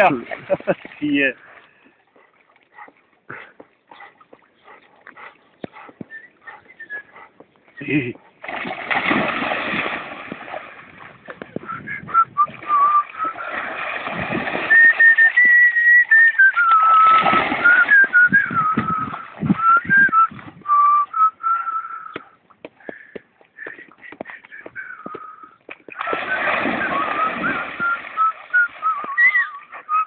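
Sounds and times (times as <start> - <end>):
person whistling a tune: 6.1 - 7.2, 11.6 - 13.4, 14.7 - 22.3, 24.7 - 25.6, 26.7 - 30.0
dog splashing in water: 8.4 - 11.4, 12.6 - 15.7, 16.5 - 19.5, 25.9 - 29.9.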